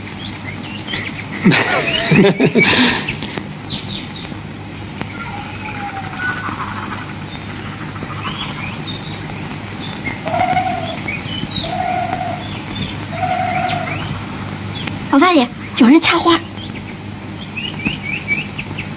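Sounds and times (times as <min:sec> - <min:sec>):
birds chirping and twittering: 0:00.0 - 0:18.9
steady low hum: 0:00.0 - 0:18.9
lower repeated bird note: 0:05.0 - 0:15.8.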